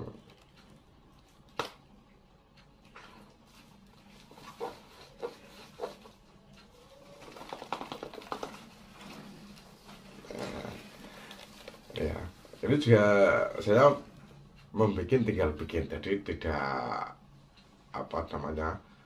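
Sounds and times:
cardboard mask knocks and clatter: 0:07.2 - 0:08.6.

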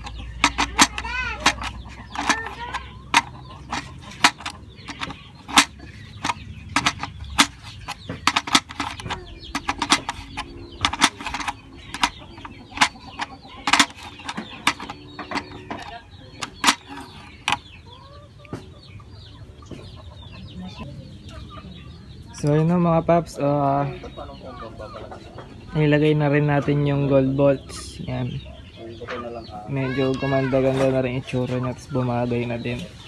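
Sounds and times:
socket wrench clicking: 0:00.0 - 0:17.6
chicken clucking: 0:00.0 - 0:33.0.

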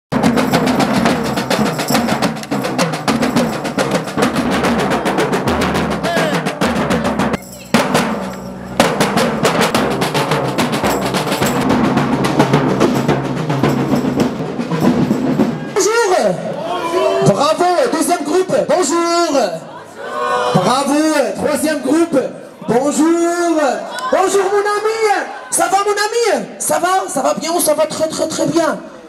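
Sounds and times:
marching drum band: 0:00.1 - 0:16.5.

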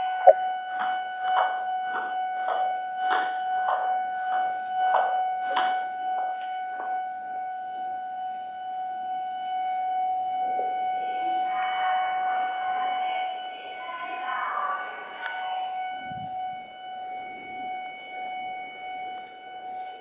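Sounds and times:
steady high-pitched tone: 0:00.0 - 0:00.5, 0:10.2 - 0:20.0.

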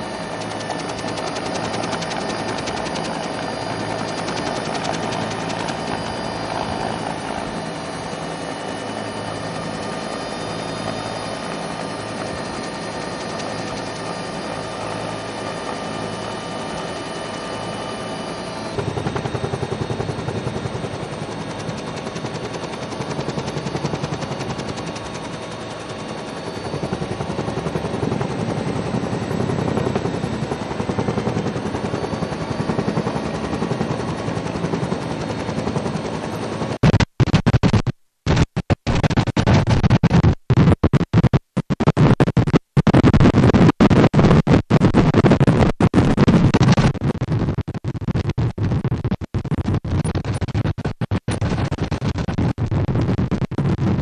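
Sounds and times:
helicopter turbine whine: 0:00.0 - 0:37.0, 0:48.9 - 0:53.4
helicopter rotor chopping: 0:00.0 - 0:53.6.

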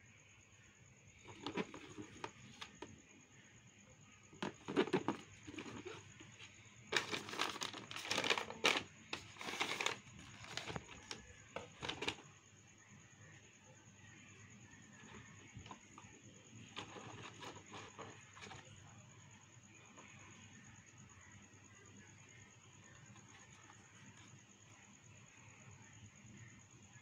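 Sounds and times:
tissue paper rustling: 0:06.9 - 0:11.2.

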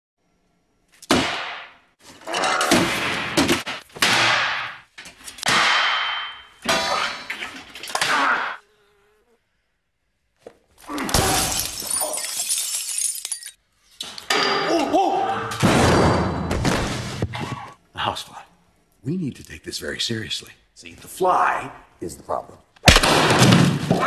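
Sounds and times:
housefly buzzing: 0:08.3 - 0:09.7.

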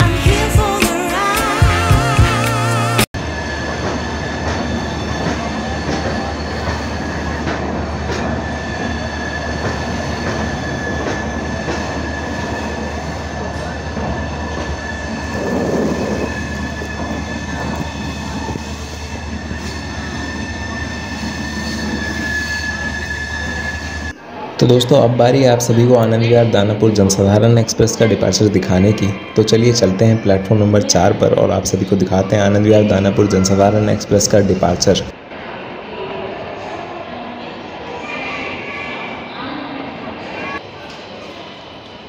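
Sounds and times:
train wheels rumbling on rail: 0:03.2 - 0:24.2.

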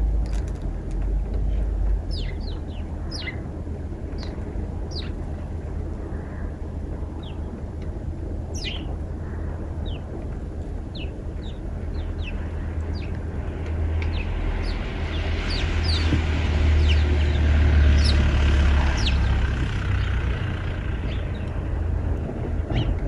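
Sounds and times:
low rumble: 0:00.0 - 0:23.0
sparrows chirping: 0:01.5 - 0:05.5, 0:07.1 - 0:07.6, 0:08.5 - 0:21.8, 0:22.7 - 0:23.0.

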